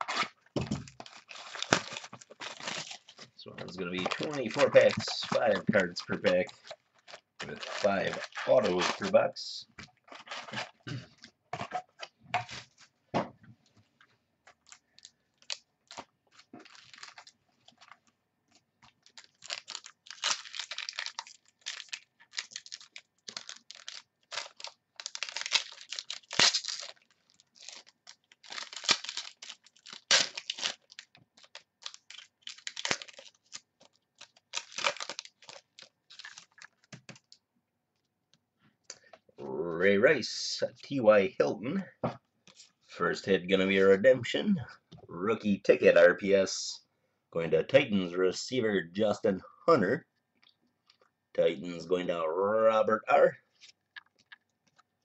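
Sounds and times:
foil wrapper crinkling and tearing: 0.0s - 11.0s, 14.4s - 18.1s, 18.8s - 37.4s.

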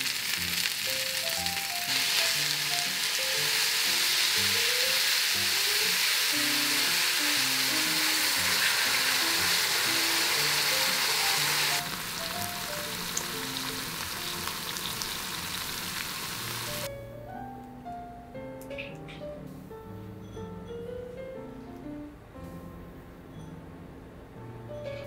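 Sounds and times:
sauce sizzling in a hot pan: 0.0s - 16.9s.

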